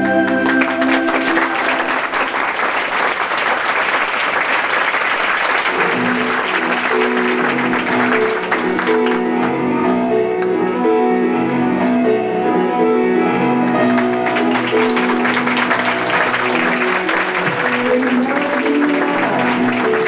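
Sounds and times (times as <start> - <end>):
audience applauding: 0.0 - 9.6, 13.8 - 20.0.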